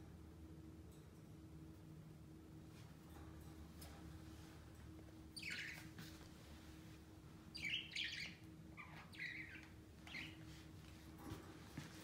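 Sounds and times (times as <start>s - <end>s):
budgerigar chirping: 5.4s - 5.8s, 7.5s - 10.4s.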